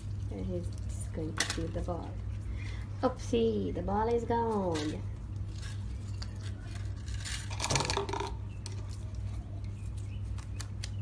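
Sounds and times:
steady low hum: 0.0 - 11.0
ball clicking on tiled floor: 7.5 - 9.0.

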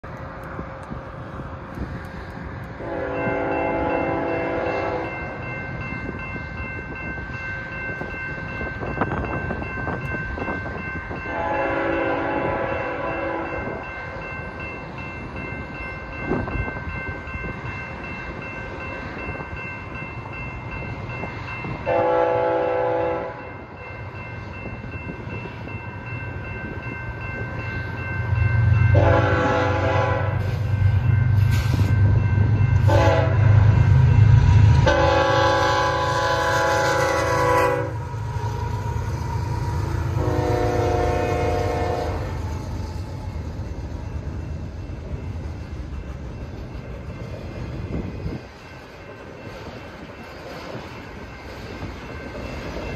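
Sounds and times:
crossing warning bell ringing: 0.5 - 52.9
train air horn: 2.8 - 5.2, 11.3 - 13.8, 21.9 - 23.4, 28.9 - 30.8, 32.8 - 33.7, 34.5 - 38.8, 39.8 - 42.6.

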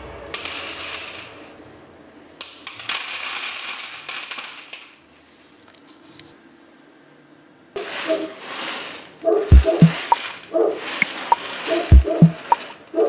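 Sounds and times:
wood pellets rattling on metal: 0.3 - 1.4, 2.4 - 5.0, 7.8 - 13.0.

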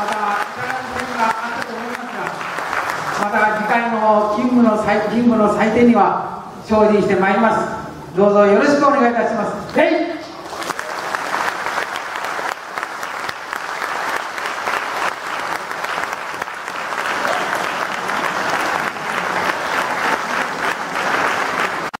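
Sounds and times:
audience applauding: 0.0 - 3.9, 10.4 - 22.0.

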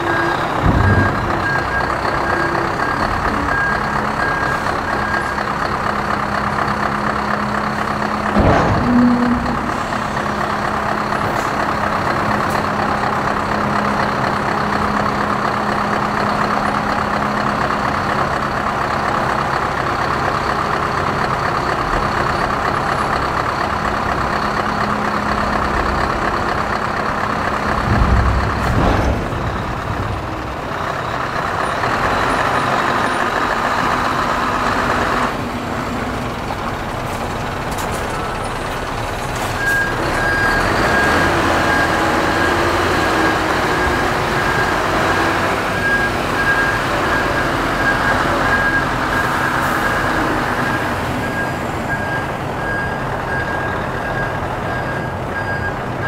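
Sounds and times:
hydraulics humming: 0.0 - 56.0
truck engine running under load: 0.0 - 56.0
loud metal clunks: 0.2 - 2.3, 8.2 - 11.5, 27.5 - 31.9.

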